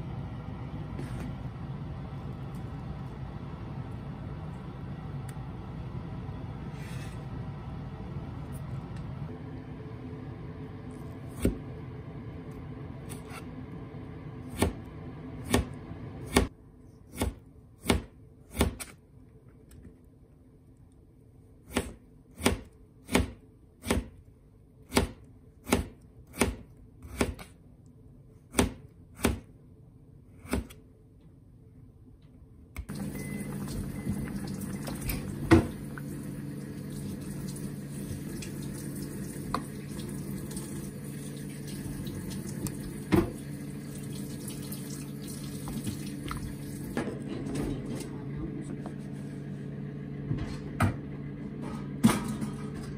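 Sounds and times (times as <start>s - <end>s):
knife chopping on cutting board: 14.5s - 14.8s, 17.1s - 19.0s, 21.7s - 24.2s, 24.9s - 27.6s, 28.5s - 29.5s, 30.4s - 30.8s.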